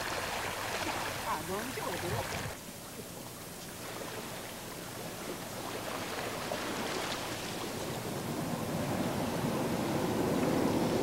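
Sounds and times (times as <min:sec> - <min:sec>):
waves washing onto sandy shore: 0:00.0 - 0:02.6, 0:05.2 - 0:11.0.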